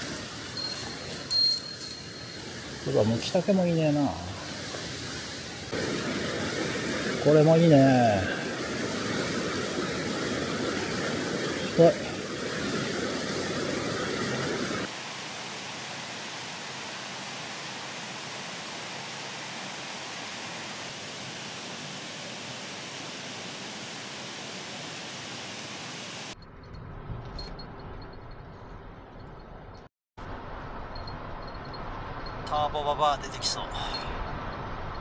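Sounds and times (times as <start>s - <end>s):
steady rushing noise: 0.0s - 26.4s.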